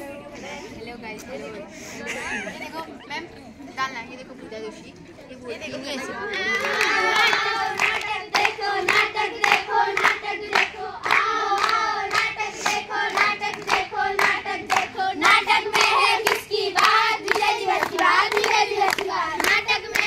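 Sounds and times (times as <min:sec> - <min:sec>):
girls singing together: 0:06.3 - 0:20.0
hands clapping in rhythm: 0:06.4 - 0:20.0.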